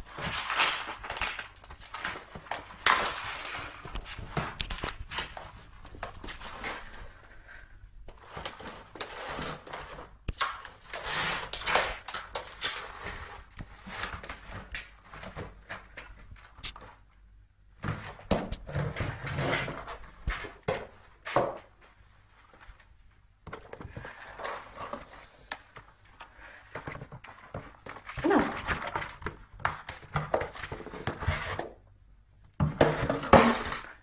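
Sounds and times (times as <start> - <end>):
cardboard box scraping on floor: 6.1 - 7.4, 8.1 - 12.1, 17.8 - 21.6, 23.8 - 25.5.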